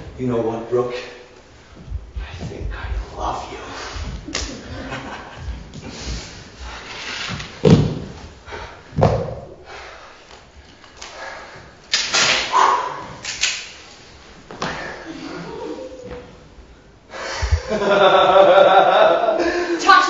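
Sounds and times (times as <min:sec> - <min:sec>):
loud thuds: 0:07.6 - 0:08.3.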